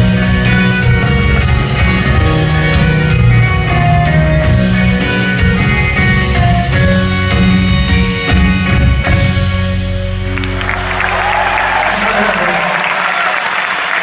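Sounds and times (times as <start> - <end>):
steady drum beat: 0.0 - 9.7
bass notes: 0.0 - 12.1
electric and acoustic guitars: 0.0 - 13.0.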